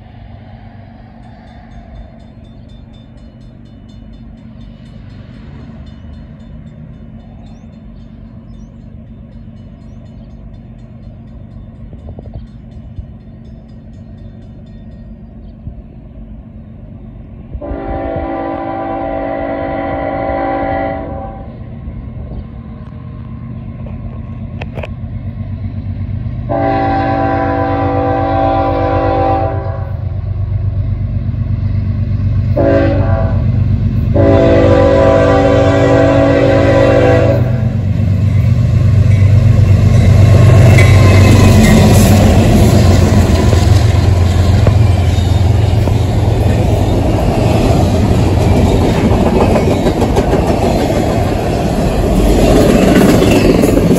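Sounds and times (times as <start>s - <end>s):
deep diesel locomotive rumble: 0.0s - 53.9s
train air horn blasts: 17.6s - 21.6s, 26.5s - 30.1s, 32.6s - 33.5s, 34.1s - 37.8s
freight cars rattling and clacking: 39.1s - 53.9s.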